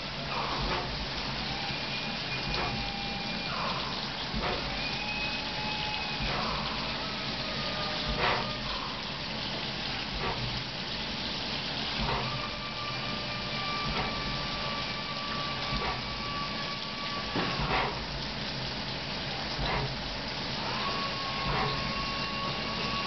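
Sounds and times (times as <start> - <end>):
coolant spray hissing: 0.0 - 23.0
milling machine running: 0.0 - 23.0.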